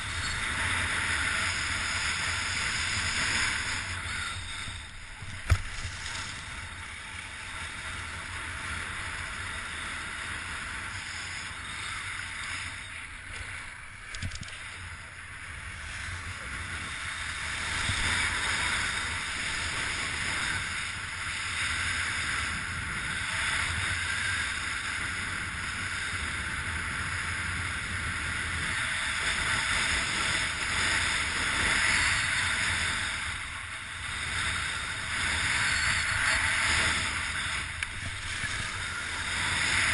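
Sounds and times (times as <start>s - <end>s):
wind on microphone: 0.0s - 39.9s.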